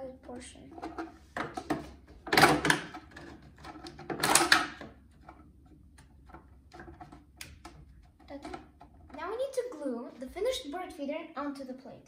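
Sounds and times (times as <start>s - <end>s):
plastic clicks and taps: 0.8s - 9.2s.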